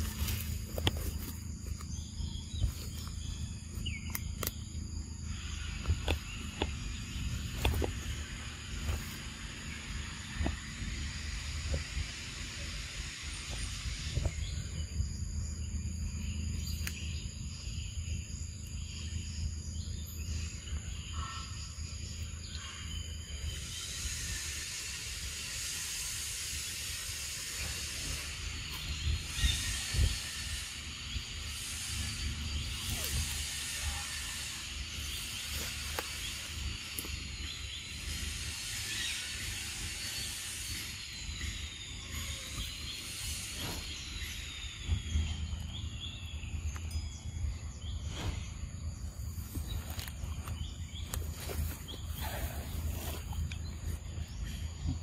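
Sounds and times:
constant low rumble: 0:00.0 - 0:55.0
forest ambience hiss: 0:00.0 - 0:55.0
high insect drone: 0:00.0 - 0:55.0.

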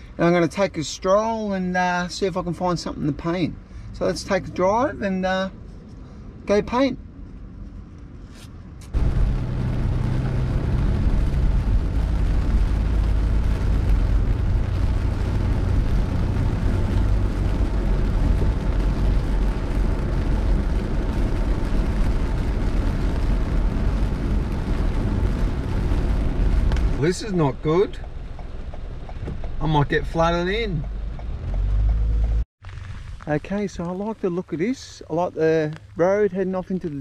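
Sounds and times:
rain on windscreen: 0:08.9 - 0:37.0
tyres rumbling on wet road: 0:09.0 - 0:37.0.

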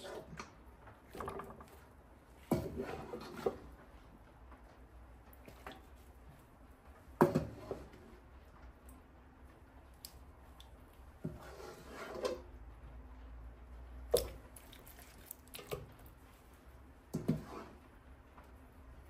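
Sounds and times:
meat squishing into pot: 0:14.1 - 0:16.2.

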